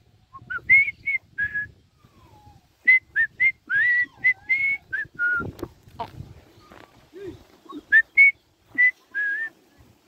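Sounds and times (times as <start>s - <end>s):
person whistling short notes: 7.8s - 9.5s.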